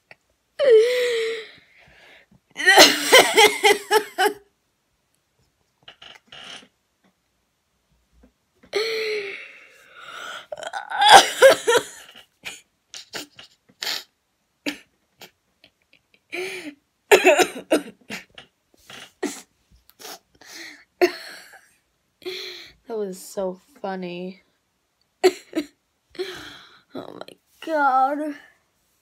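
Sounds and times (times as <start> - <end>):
person laughing hard: 2.6 - 4.4.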